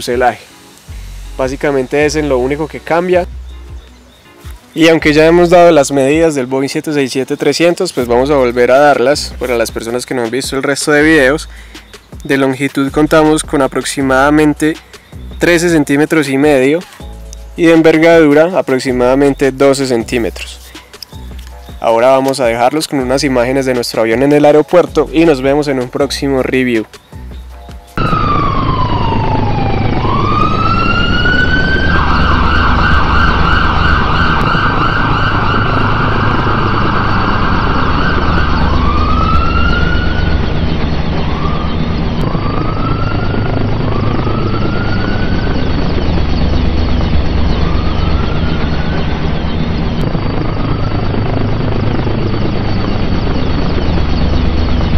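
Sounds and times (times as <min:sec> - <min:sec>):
emergency vehicle sirens: 0:28.0 - 0:54.9
steady rumble: 0:28.0 - 0:54.9.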